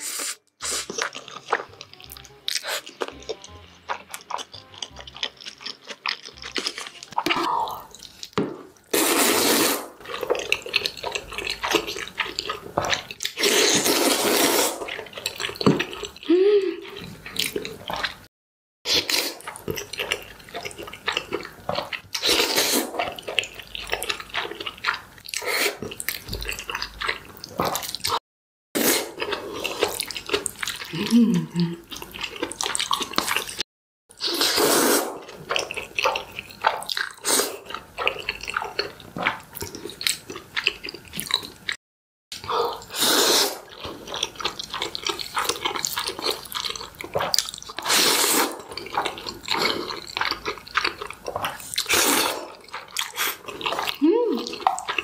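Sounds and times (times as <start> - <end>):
slurping noodles: 0.0 - 1.7, 8.9 - 16.2, 21.8 - 28.2, 28.8 - 31.2, 31.9 - 39.9, 42.4 - 55.0
chewing mouth sounds: 0.6 - 9.0, 10.0 - 14.1, 14.7 - 18.3, 18.9 - 28.2, 29.2 - 33.6, 34.2 - 55.0.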